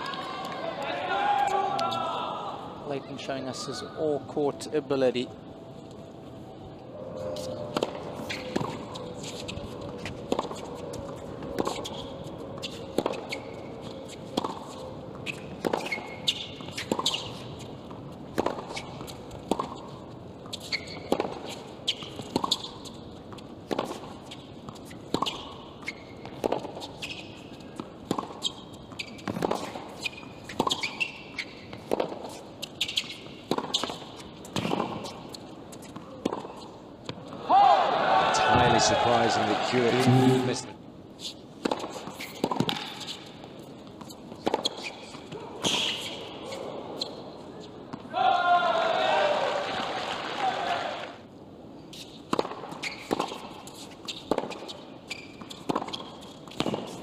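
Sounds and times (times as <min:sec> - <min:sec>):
shoes squeaking on court: 0:07.2 - 0:37.4, 0:38.5 - 0:48.1, 0:51.8 - 0:57.0
tennis ball bouncing: 0:14.3 - 0:27.2, 0:27.8 - 0:37.4, 0:41.6 - 0:44.9, 0:52.2 - 0:57.0
racket hitting tennis ball: 0:18.3 - 0:19.8, 0:26.3 - 0:26.8, 0:29.2 - 0:31.0, 0:31.8 - 0:35.2, 0:41.6 - 0:43.2, 0:52.3 - 0:54.7, 0:55.5 - 0:57.0.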